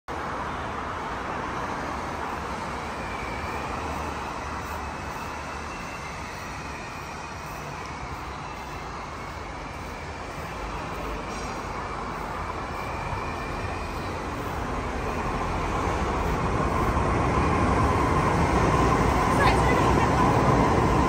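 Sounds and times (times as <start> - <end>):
traffic rumble: 0.1 - 21.0.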